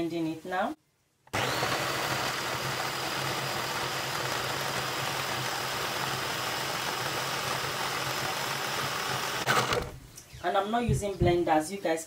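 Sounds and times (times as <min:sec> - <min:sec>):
food processor motor hum: 0:01.3 - 0:10.0.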